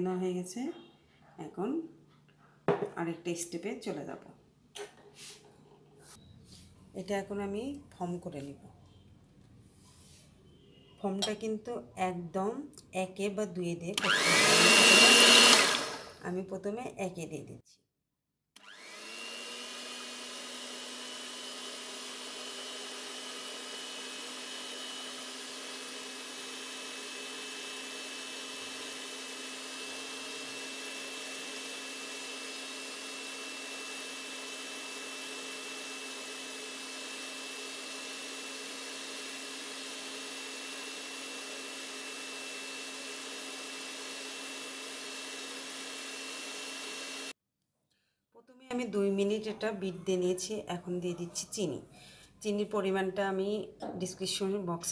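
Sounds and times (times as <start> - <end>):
hand mixer motor humming and whining: 14.0 - 16.2, 18.6 - 47.4.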